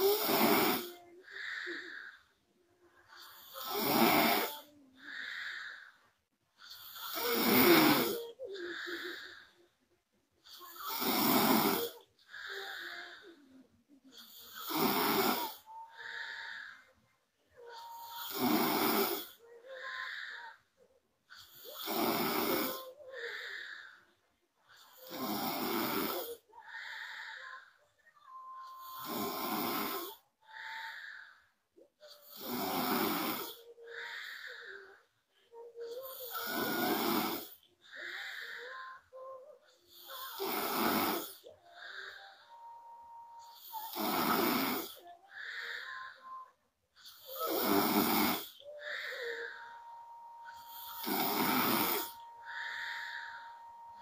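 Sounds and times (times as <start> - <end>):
woman snoring: 0.0 - 2.4, 3.0 - 9.7, 10.4 - 17.0, 17.6 - 20.7, 21.3 - 24.0, 24.7 - 54.0
soft breath: 0.0 - 54.0
faint whistling tone: 41.7 - 44.0, 48.6 - 54.0.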